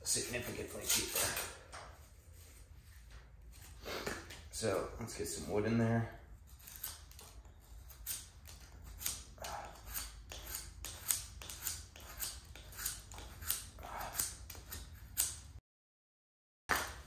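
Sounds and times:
knife whittling wood: 6.5s - 15.6s.

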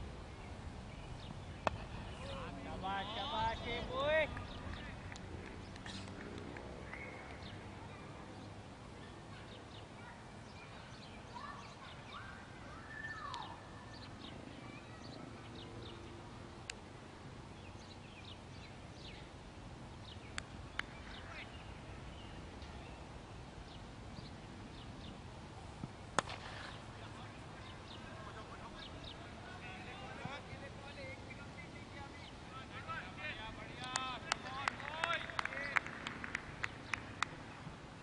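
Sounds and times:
small birds chirping: 0.2s - 6.2s, 6.8s - 16.8s, 17.5s - 19.4s, 20.0s - 35.8s
cricket bat striking ball: 26.1s - 26.8s.

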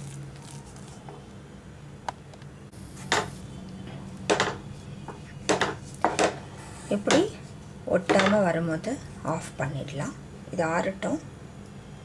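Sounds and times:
spatula knocking against pan: 4.3s - 6.4s.

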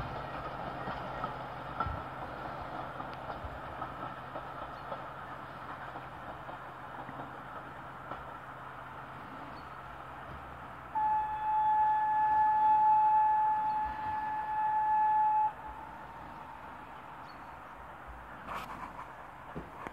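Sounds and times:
steam locomotive whistle: 10.9s - 16.1s.

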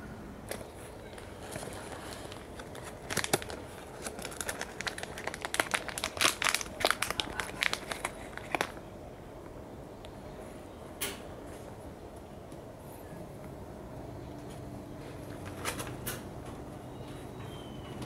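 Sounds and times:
newspaper crinkling and rustling: 0.5s - 8.9s.

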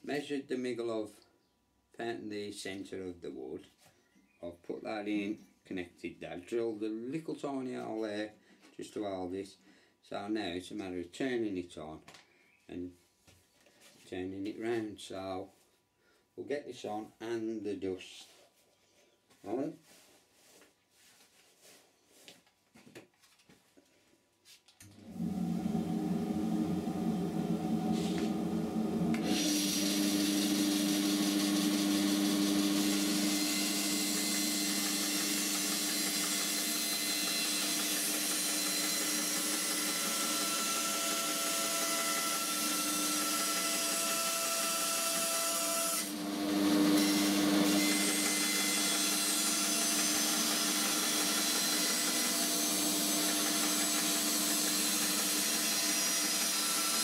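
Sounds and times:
dust extraction running: 24.9s - 45.2s, 45.9s - 57.0s
band saw cutting plywood: 25.1s - 57.0s.

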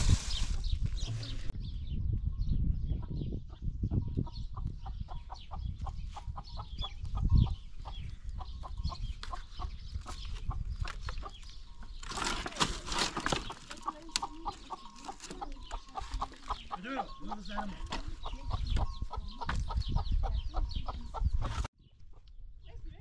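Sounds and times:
chickens clucking: 2.9s - 22.3s
firewood sticks clattering: 12.0s - 15.5s.

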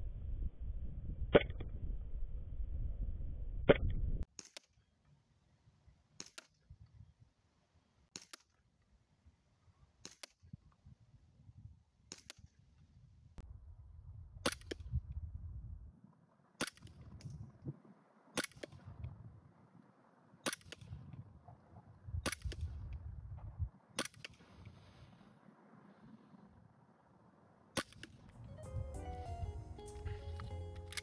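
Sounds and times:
wind rumbling on microphone: 0.0s - 4.3s, 6.6s - 7.3s, 10.4s - 11.8s, 12.4s - 16.2s, 16.8s - 18.0s, 18.6s - 19.9s, 20.7s - 26.9s, 28.0s - 30.6s.

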